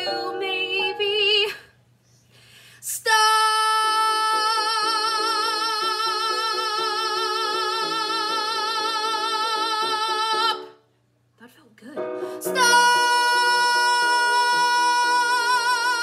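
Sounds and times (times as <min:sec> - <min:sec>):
piano accompaniment: 0:00.0 - 0:01.5, 0:04.0 - 0:10.8, 0:12.0 - 0:16.0
woman singing: 0:00.0 - 0:01.7, 0:02.8 - 0:10.8, 0:11.8 - 0:16.0
quick breath: 0:02.0 - 0:02.8.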